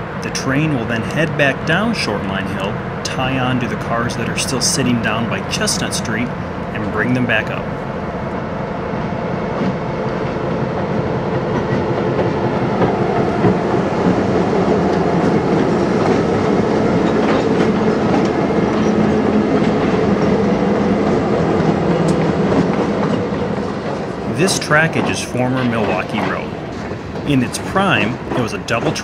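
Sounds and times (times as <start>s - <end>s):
diesel locomotive engines working: 0.0s - 29.0s
wheels clacking over rail joints: 10.8s - 29.0s.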